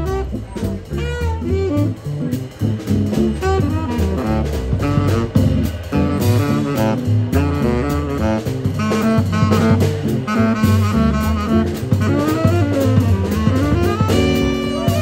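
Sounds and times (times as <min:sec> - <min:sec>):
drum kit: 0:00.0 - 0:15.0
saxophones playing melody: 0:00.0 - 0:15.0
upright bass: 0:00.0 - 0:15.0
electric guitar: 0:11.5 - 0:15.0.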